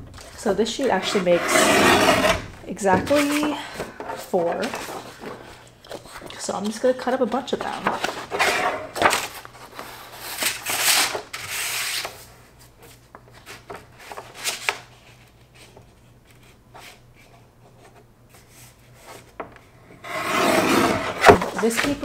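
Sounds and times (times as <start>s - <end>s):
blade scraping through paper: 0.8s - 2.5s, 20.0s - 22.0s
paper handling: 2.4s - 19.4s, 21.2s - 22.0s.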